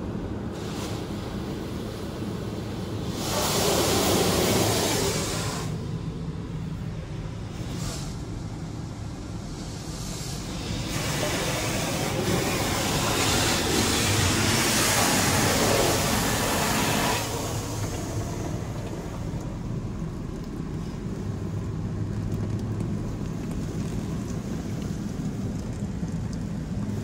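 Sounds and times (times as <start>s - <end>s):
high-pressure water jets spraying: 0.6s - 5.8s, 9.6s - 19.3s.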